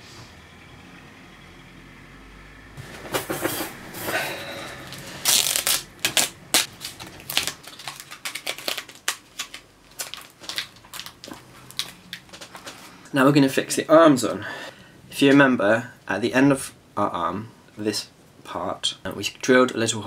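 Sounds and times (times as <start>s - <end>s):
papier-mache crinkling and rustling: 2.8s - 13.0s.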